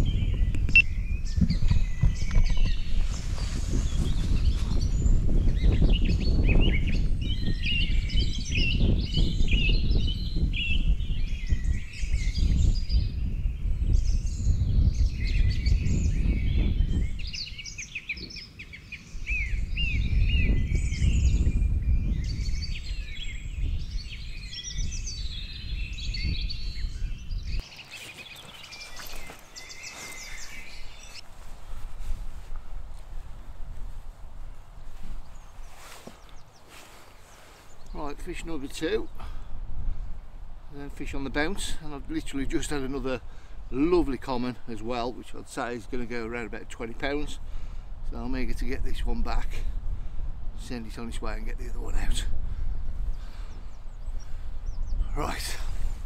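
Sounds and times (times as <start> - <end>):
songbirds chirping and singing: 0.0 - 31.2, 34.8 - 39.7, 40.5 - 50.0, 50.6 - 56.0
wind rumble on microphone: 0.0 - 56.0.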